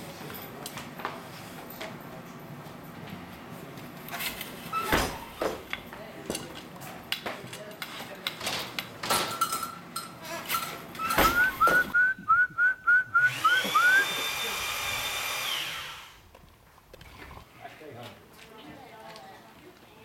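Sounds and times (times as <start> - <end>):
rising whistled chirps: 11.0 - 14.2
steady whistle-like tone: 11.0 - 14.2.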